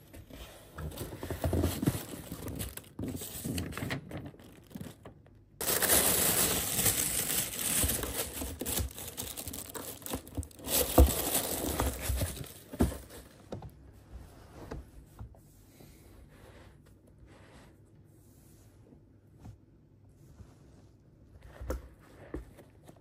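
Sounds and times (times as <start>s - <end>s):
tissue paper rustling: 0.9s - 5.0s, 5.6s - 13.2s.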